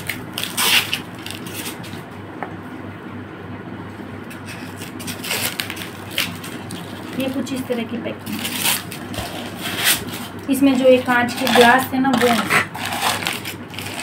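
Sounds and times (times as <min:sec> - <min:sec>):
cardboard and foam scraping: 0:08.3 - 0:14.0.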